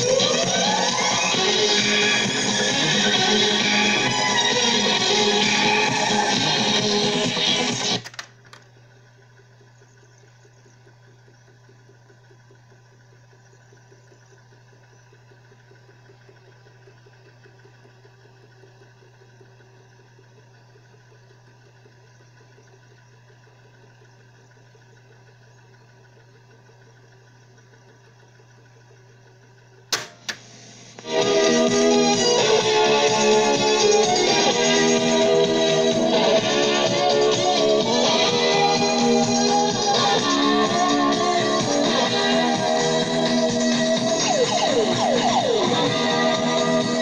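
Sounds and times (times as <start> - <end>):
music from cassette: 0.0 - 8.8, 30.0 - 47.0
cassette mechanism running: 0.0 - 47.0
low hum: 0.0 - 47.0
tape hiss: 0.0 - 47.0.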